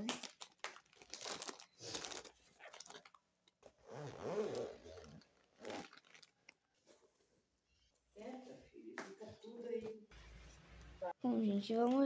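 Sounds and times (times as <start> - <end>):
plastic chip bag crinkling: 0.0 - 3.6, 5.4 - 6.7.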